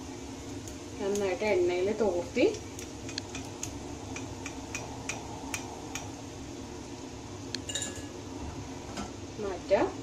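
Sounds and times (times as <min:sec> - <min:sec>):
oil frying hiss: 0:00.0 - 0:10.0.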